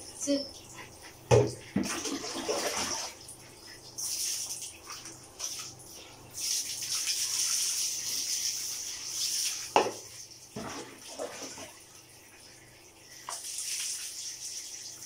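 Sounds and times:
water splashing onto tiled floor: 3.9 - 11.8, 13.2 - 15.0.

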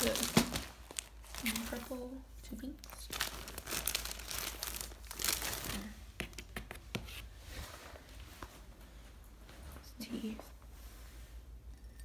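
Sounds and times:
plastic shrink-wrap crinkling: 0.0 - 6.1.

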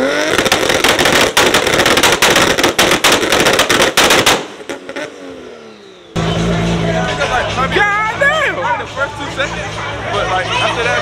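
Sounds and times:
exhaust pops and bangs: 0.1 - 5.0.

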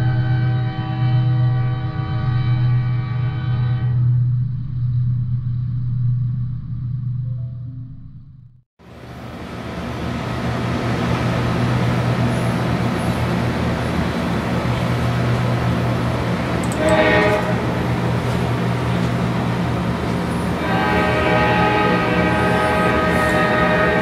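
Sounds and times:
diesel locomotive engines rumbling: 8.8 - 24.0
train air horn blasts: 16.7 - 18.1, 20.5 - 24.0.

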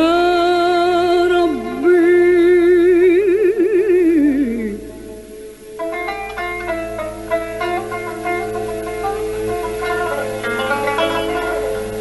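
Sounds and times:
woman singing with vibrato: 0.0 - 5.4
plucked string instrument: 0.0 - 12.0.

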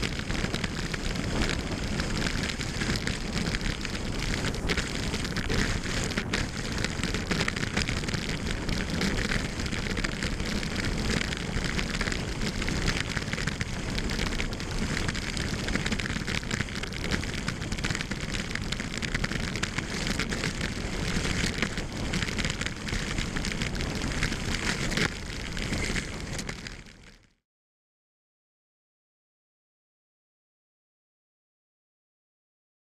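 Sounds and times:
skis hissing over snow: 0.1 - 26.4.

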